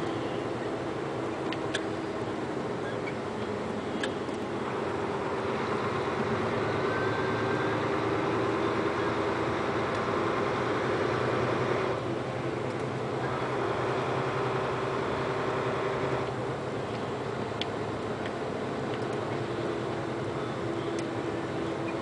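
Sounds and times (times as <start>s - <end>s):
road noise: 0.0s - 22.0s
vehicle engine drone: 0.0s - 22.0s
light ticks: 20.9s - 21.1s.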